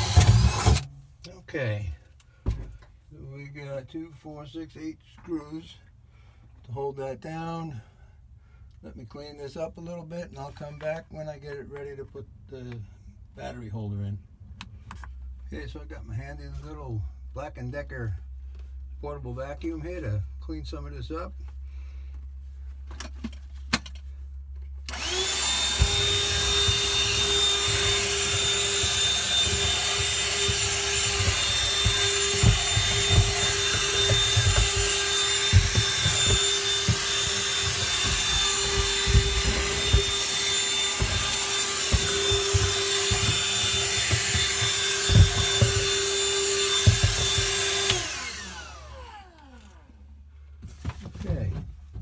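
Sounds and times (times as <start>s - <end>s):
handheld vacuum whining: 0.0s - 0.9s, 24.9s - 50.0s.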